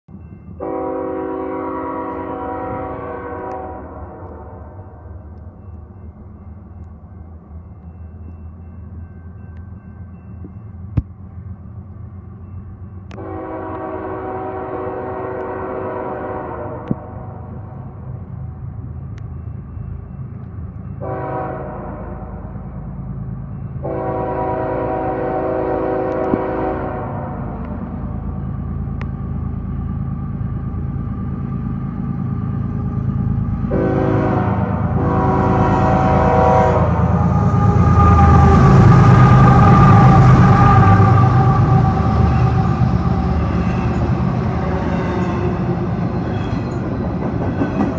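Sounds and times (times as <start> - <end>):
locomotive air horn chord: 0.6 - 4.8, 13.1 - 17.0, 21.0 - 22.5, 23.8 - 27.6, 33.6 - 45.6.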